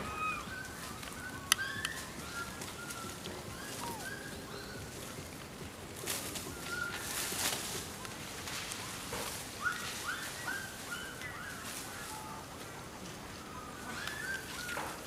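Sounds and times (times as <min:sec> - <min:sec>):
squeaky animal calls: 0:00.0 - 0:04.3.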